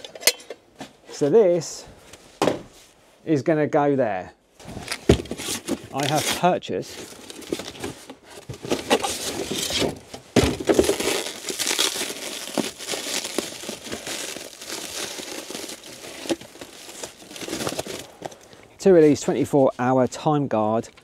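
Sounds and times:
cardboard packaging crinkling: 4.6s - 18.6s.

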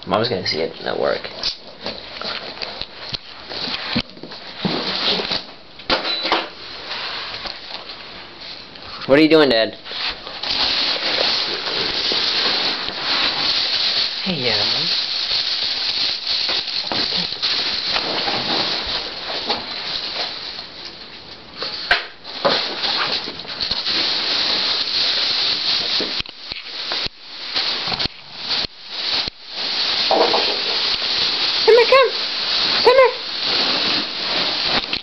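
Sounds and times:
puppy playing with ball on carpet: 1.3s - 5.4s, 9.8s - 14.2s, 14.9s - 20.6s, 21.6s - 35.0s.

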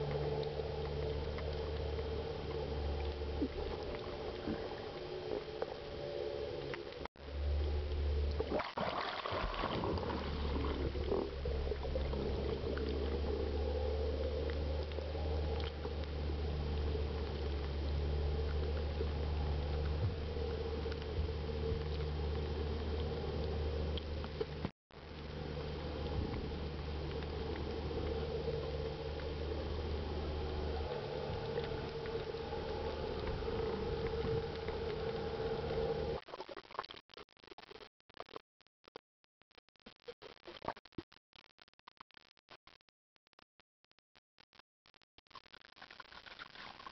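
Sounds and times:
low hum: 0.0s - 36.2s
underwater boat motor drone: 0.0s - 36.2s
water rushing past: 8.3s - 14.0s.

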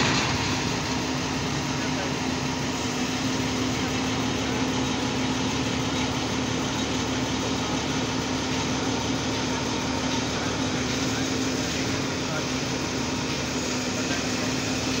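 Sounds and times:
diesel engine humming: 0.0s - 15.0s.

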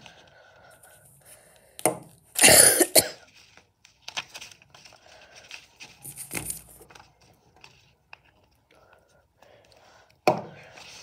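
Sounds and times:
person coughing: 2.4s - 3.2s
paper crackling: 3.3s - 8.6s.

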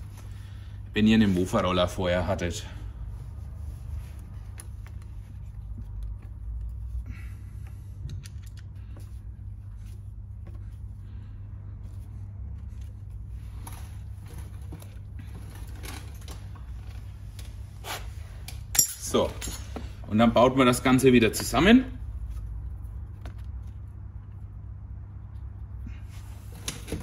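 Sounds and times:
steady low hum: 0.0s - 27.0s
clicks and scrapes of metal parts: 8.1s - 8.8s.

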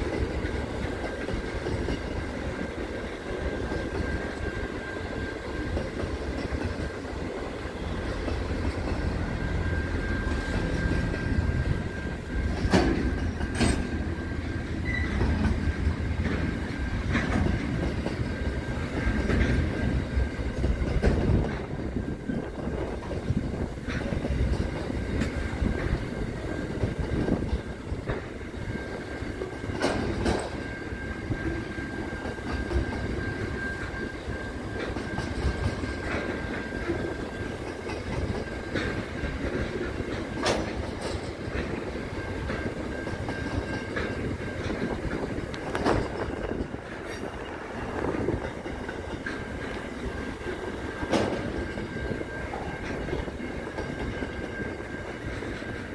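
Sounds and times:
train wheels on rail: 0.0s - 55.9s
wheels clicking over rail joints: 0.0s - 55.9s
high squeal of wheels: 7.7s - 17.0s, 30.4s - 39.4s.

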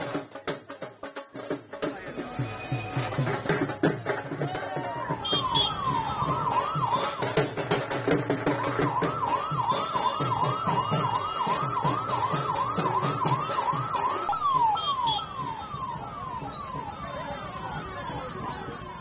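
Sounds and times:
electronic siren yelping: 5.1s - 7.5s, 8.6s - 19.0s.

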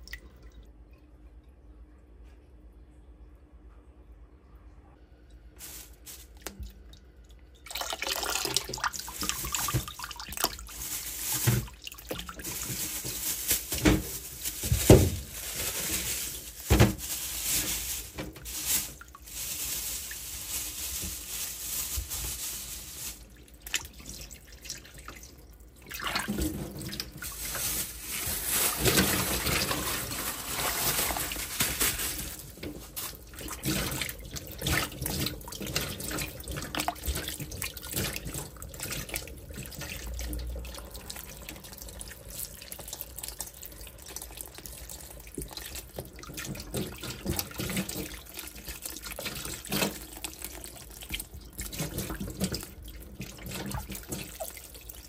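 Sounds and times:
tap water splashing over fruit: 7.7s - 15.2s, 32.6s - 55.0s.

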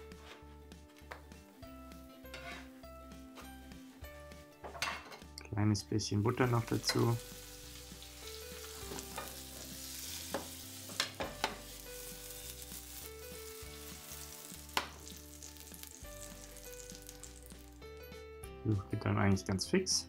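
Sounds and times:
pancakes sizzling in a pan: 6.7s - 17.8s.

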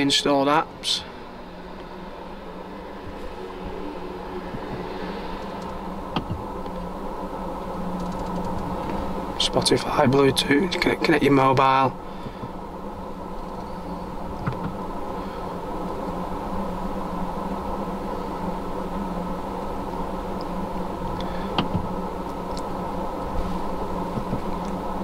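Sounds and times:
car cabin hum: 2.4s - 7.0s, 23.2s - 24.7s.

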